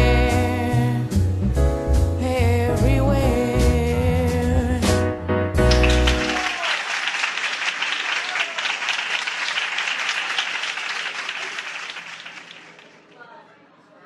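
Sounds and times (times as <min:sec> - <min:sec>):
audience applause: 0:05.7 - 0:13.1.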